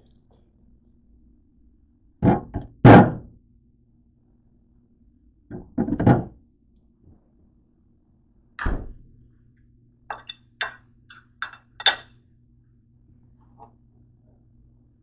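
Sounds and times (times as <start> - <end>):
low steady hum: 0.0 - 15.0
refrigerator door thumping shut: 8.6 - 9.0
sharp clicks and clinks: 10.1 - 12.1.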